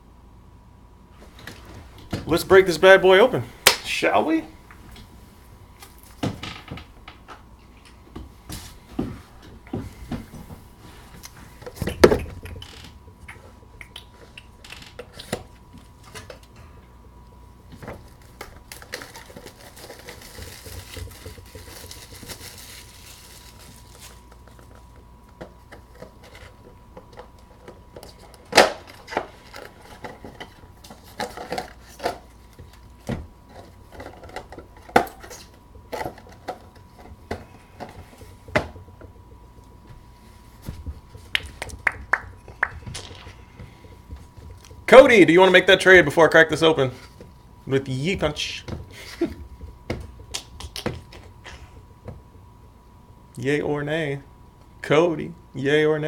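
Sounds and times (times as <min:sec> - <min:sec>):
cardboard rustling and tapping: 0:17.7 - 0:45.2, 0:48.1 - 0:52.5.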